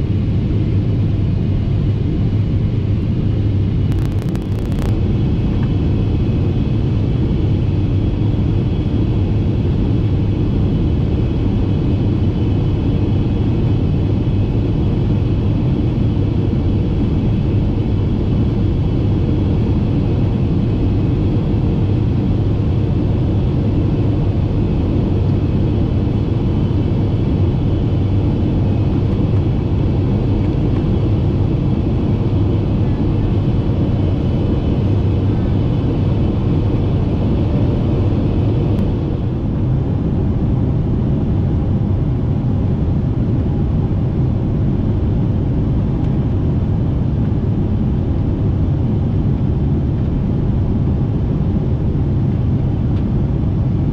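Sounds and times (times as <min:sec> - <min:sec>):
airplane cabin drone: 0:00.0 - 0:53.9.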